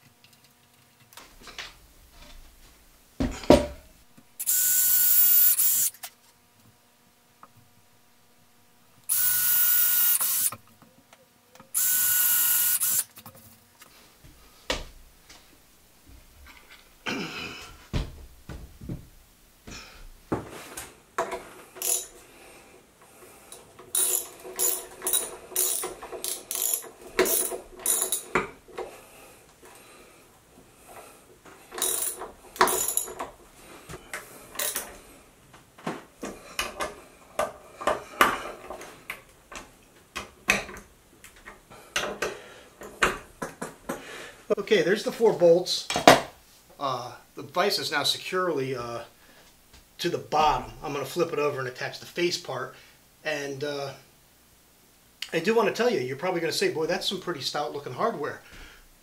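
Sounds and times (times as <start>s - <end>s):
ratchet wrench clicking: 4.4s - 6.0s, 9.1s - 10.6s, 11.8s - 13.1s, 21.8s - 22.1s, 23.9s - 28.4s, 31.8s - 33.2s, 34.6s - 34.9s.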